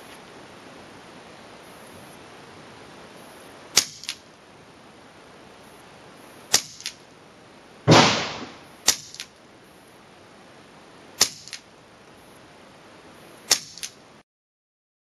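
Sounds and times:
air rifle shots: 3.7s - 4.2s, 6.5s - 7.0s, 7.9s - 9.4s, 11.2s - 11.6s, 13.5s - 14.0s
fainter second crack: 7.9s - 9.4s.

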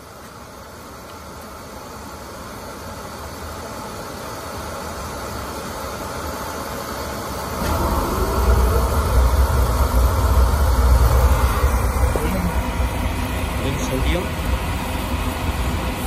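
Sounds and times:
oil burner motor and pump: 0.0s - 16.0s
deep burner rumble: 7.3s - 16.0s.

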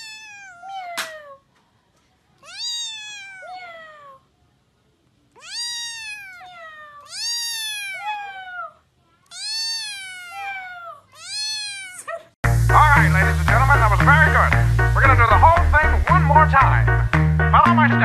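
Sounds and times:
kitten meowing: 0.0s - 1.4s, 2.4s - 4.2s, 5.3s - 12.3s.

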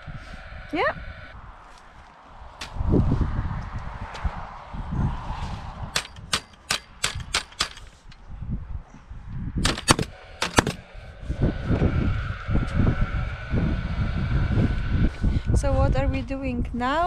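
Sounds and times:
nail gun firing nails into timber: 6.0s - 8.0s, 9.6s - 10.8s.

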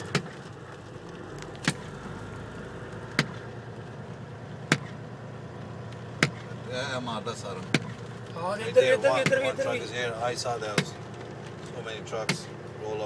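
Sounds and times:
vehicle cab hum: 0.0s - 13.0s
windshield wipers knocking: 3.1s - 3.5s, 4.6s - 5.0s, 6.2s - 6.5s, 7.5s - 8.3s, 10.4s - 11.3s.

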